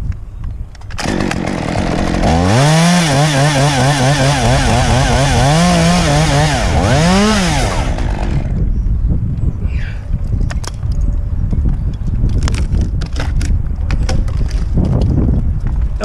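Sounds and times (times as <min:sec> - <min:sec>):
chainsaw revving: 0:01.0 - 0:08.6.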